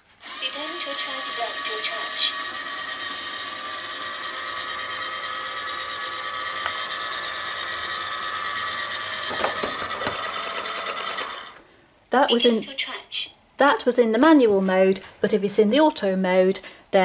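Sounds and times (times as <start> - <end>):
robot vacuum motor whine: 0.2 - 11.6.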